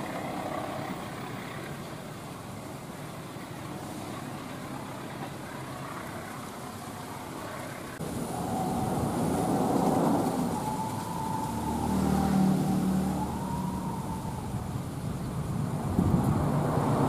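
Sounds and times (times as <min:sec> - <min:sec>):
vehicle noise: 0:00.0 - 0:17.0.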